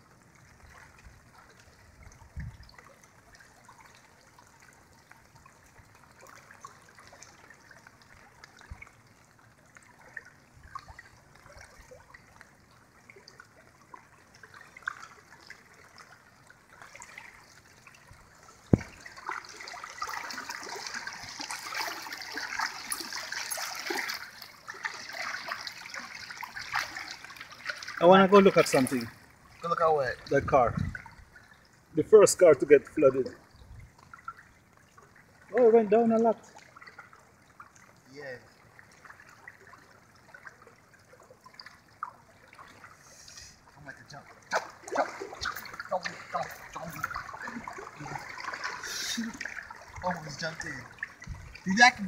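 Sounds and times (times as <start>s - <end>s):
fine water patter: 0.0s - 52.0s
water trickling and lapping: 0.0s - 52.0s.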